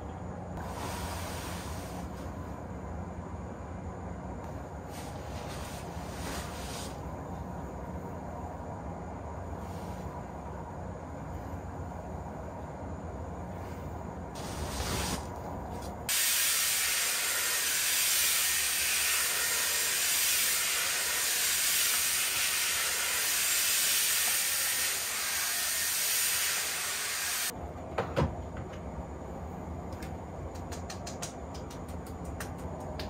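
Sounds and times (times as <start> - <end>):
hair dryer blowing: 16.1 - 27.5.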